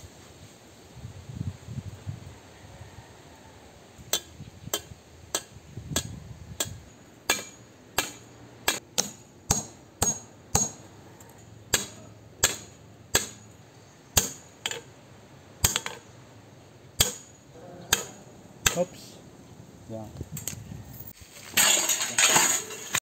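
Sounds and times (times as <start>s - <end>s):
hammer tapping metal brackets: 4.1s - 10.9s, 15.6s - 16.0s.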